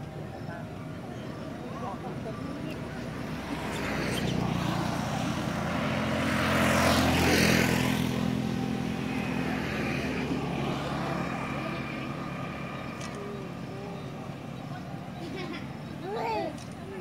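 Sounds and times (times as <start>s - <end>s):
motor vehicle passing: 1.4s - 17.0s.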